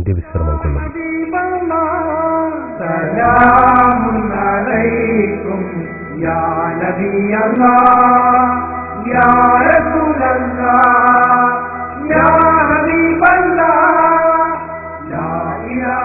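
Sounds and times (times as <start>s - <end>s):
steady low hum: 0.0s - 0.9s
man singing a chant: 0.0s - 5.6s.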